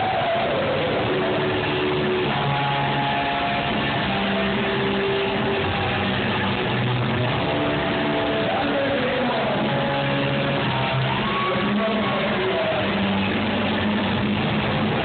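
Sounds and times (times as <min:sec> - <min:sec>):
live metal band playing: 0:00.0 - 0:15.0.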